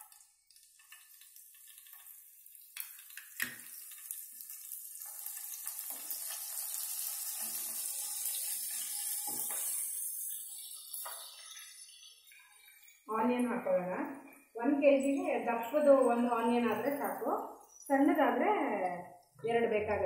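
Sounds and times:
leaves sizzling in hot oil: 0.0 - 14.0.

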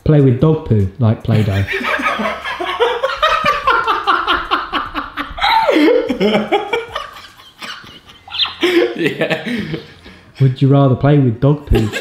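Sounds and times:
man laughing: 1.4 - 10.2, 11.7 - 12.0.

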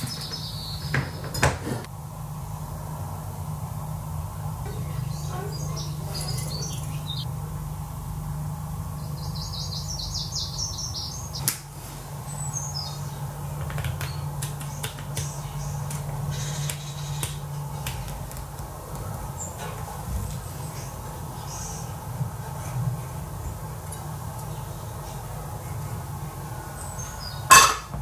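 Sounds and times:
steady low hum: 1.8 - 28.0
bird chirping: 4.7 - 7.3, 9.0 - 11.5.

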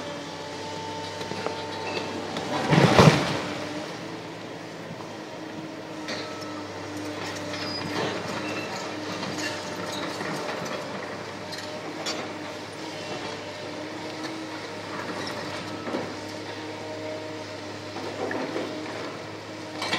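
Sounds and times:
excavator diesel engine running: 0.0 - 19.9
high squeals of demolition shears: 1.2 - 3.0, 6.0 - 10.2.

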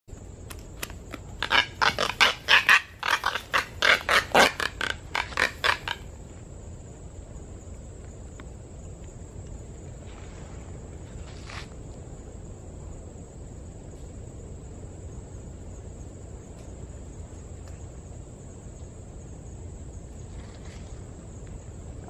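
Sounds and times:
faint background hiss: 0.1 - 22.0
seabird harsh raspy calls: 1.4 - 6.1.

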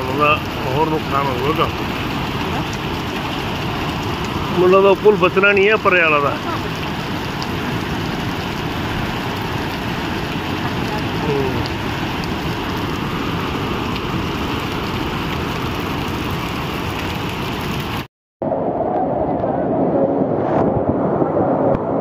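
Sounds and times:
river rushing in flood: 0.0 - 18.1
falling rain: 0.0 - 22.0.

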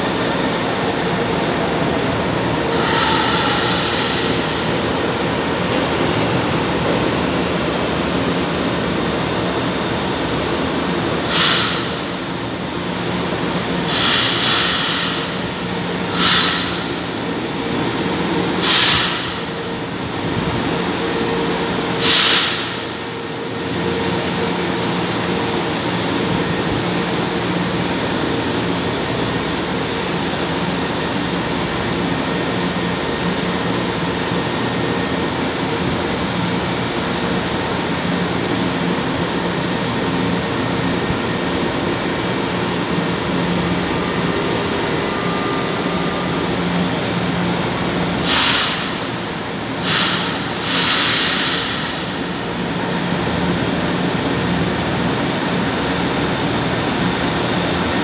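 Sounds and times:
train motors humming: 0.0 - 58.0
short sharp hisses: 16.2 - 16.7, 18.6 - 19.3, 49.8 - 52.0.

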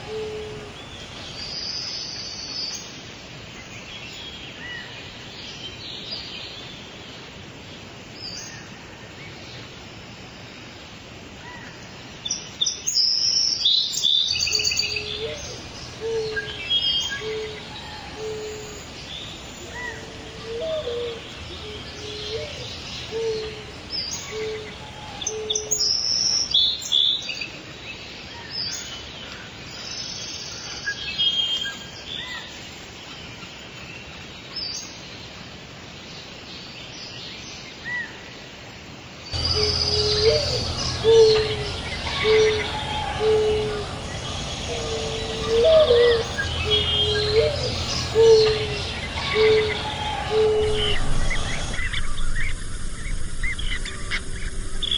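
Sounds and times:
low hooting bird call: 0.0 - 1.2, 14.0 - 26.0, 39.4 - 54.9
songbirds chirping: 0.0 - 54.9.

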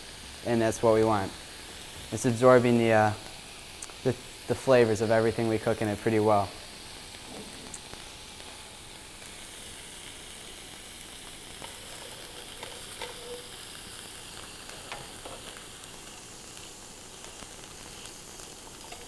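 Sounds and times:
tofu sizzling in a pan: 0.0 - 19.0.

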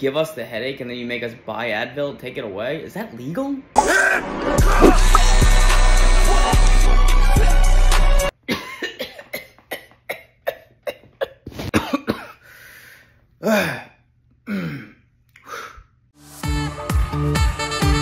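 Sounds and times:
man coughing: 4.7 - 5.2, 8.5 - 12.4.

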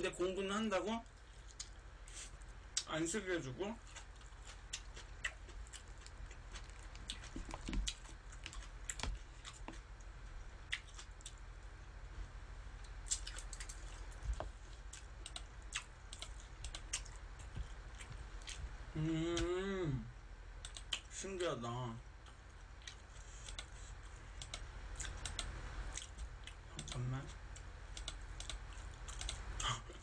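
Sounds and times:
chewing sounds: 3.8 - 11.4, 12.8 - 18.7, 22.2 - 29.8.

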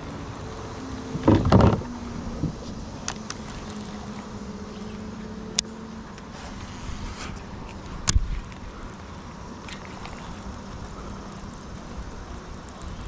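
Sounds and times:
fishing reel whirring: 0.0 - 13.0.

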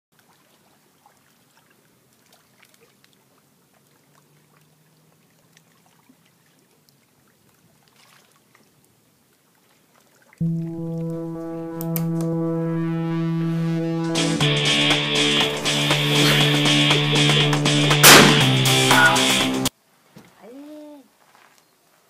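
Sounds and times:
water splashing from wading: 0.2 - 8.8.

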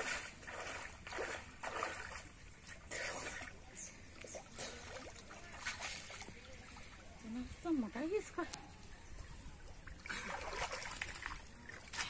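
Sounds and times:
water splashing and trickling: 0.0 - 12.0.

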